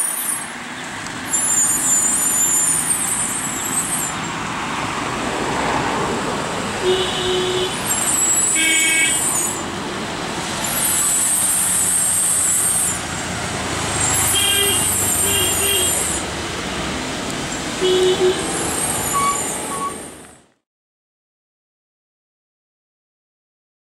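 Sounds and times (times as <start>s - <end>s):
truck diesel engine running: 0.6s - 20.4s
truck horn toots: 6.8s - 9.6s, 14.0s - 16.2s, 17.8s - 20.1s
high-pitched hiss: 14.0s - 16.3s.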